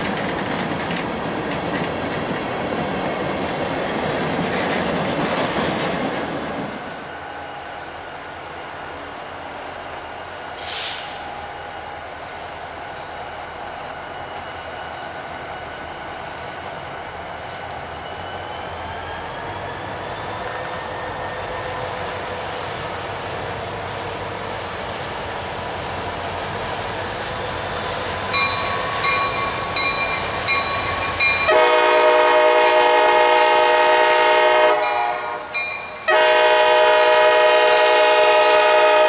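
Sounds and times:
steel wheels clattering over rail joints: 0.0s - 7.8s
diesel locomotive engine rumble: 0.0s - 39.0s
freight train cars rolling past: 0.0s - 39.0s.

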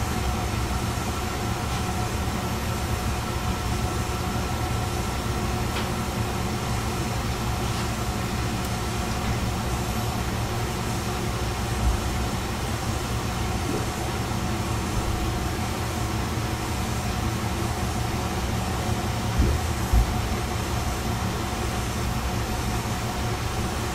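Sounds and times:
diesel railcar engine drone: 0.0s - 23.9s
wheel and rail rumble: 0.0s - 23.9s.

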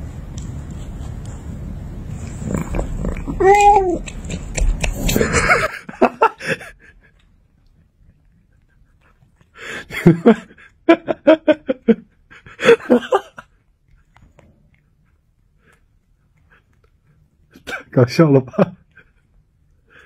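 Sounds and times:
rustling noise: 0.0s - 5.7s
person laughing: 5.0s - 7.1s, 9.6s - 13.5s.

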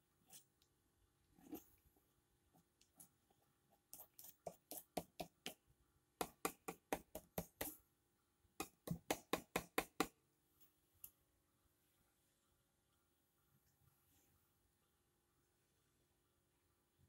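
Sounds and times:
paintbrush tapping on board: 3.9s - 5.6s, 6.2s - 7.8s, 8.6s - 10.2s.

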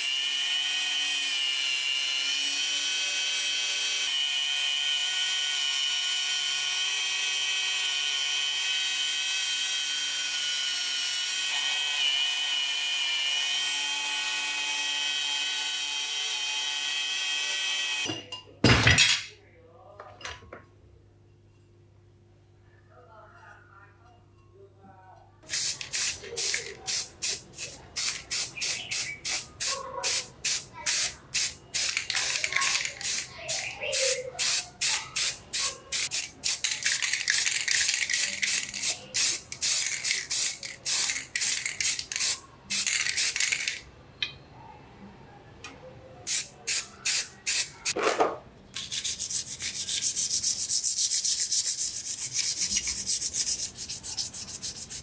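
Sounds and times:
hand sanding strokes: 48.8s - 55.0s.

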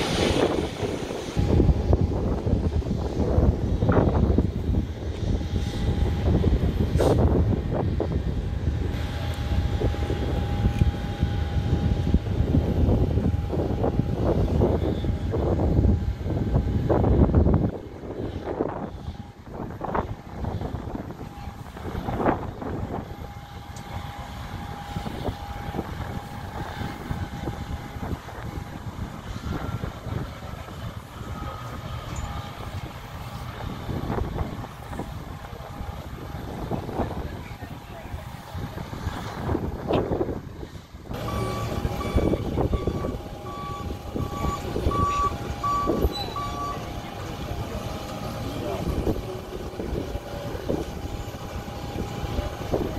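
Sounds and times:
low engine rumble: 0.0s - 52.9s
thin steady whine: 0.0s - 52.9s
reversing alarm beeping: 29.5s - 34.6s, 41.2s - 49.3s.

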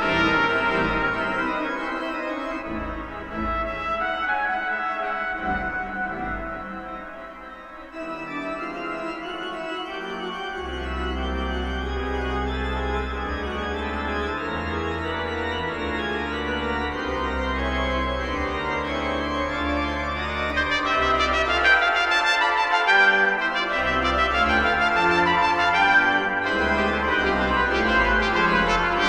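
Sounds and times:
trumpet: 0.0s - 7.5s, 20.4s - 29.0s
deep organ pedal notes: 0.0s - 29.0s
pipe organ chords: 0.0s - 29.0s.

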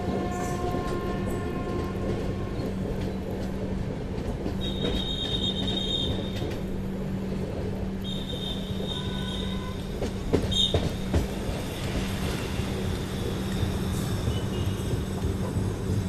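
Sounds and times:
train wheels rumbling on track: 0.0s - 16.0s.

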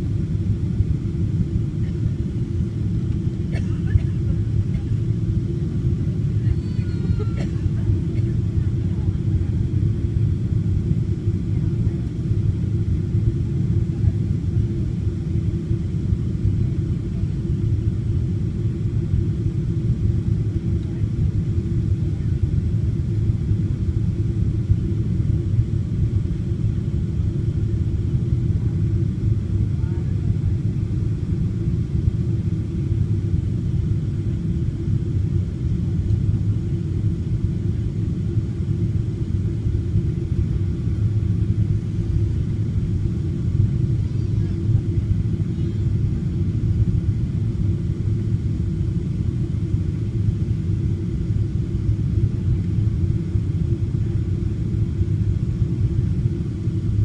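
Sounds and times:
airliner cabin rumble: 0.0s - 57.0s.

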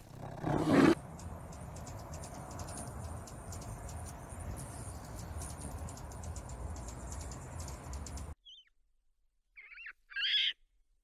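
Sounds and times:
bear growling: 0.0s - 1.0s
hummingbird chips: 0.9s - 8.3s.

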